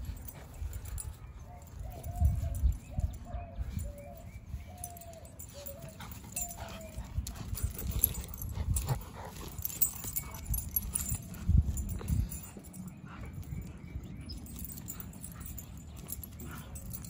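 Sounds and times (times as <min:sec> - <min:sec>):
scuffling paws: 0:00.0 - 0:17.0
dogs play growling: 0:05.0 - 0:17.0.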